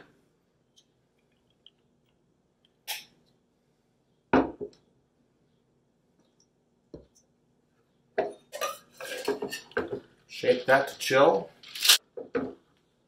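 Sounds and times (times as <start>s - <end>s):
shaker tins clinking and rattling: 11.6s - 12.0s.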